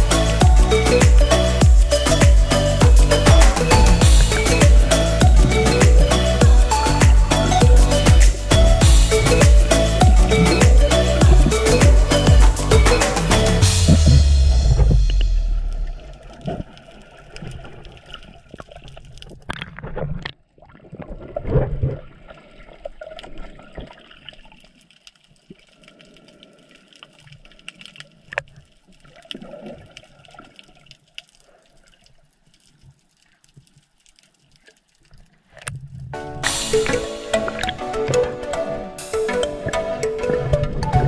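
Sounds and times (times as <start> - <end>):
rushing bubbling water underwater: 13.6 - 31.9
crackle with clicks: 13.8 - 38.3.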